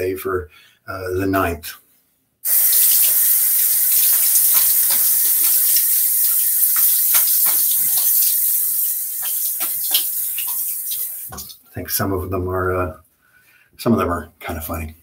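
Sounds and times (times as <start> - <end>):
tap running into sink: 2.6 - 8.5, 9.2 - 11.5
hands splashing water: 2.9 - 8.5, 9.2 - 11.6.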